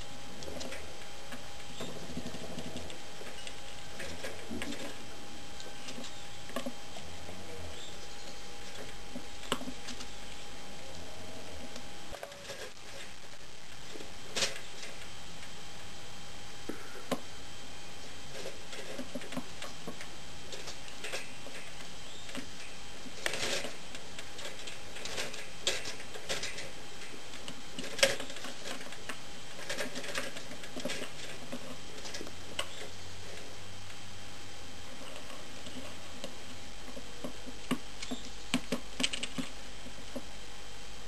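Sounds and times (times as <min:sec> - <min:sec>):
squirrel claws clicking on wire bars: 0:18.3 - 0:34.0, 0:35.0 - 0:40.2.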